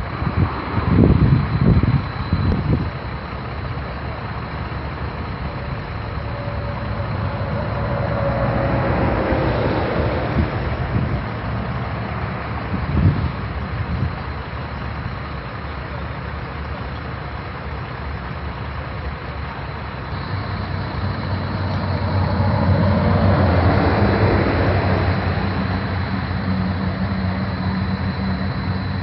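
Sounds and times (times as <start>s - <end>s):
road noise: 0.0s - 29.0s
heavy vehicle passing: 3.4s - 14.7s, 19.4s - 29.0s.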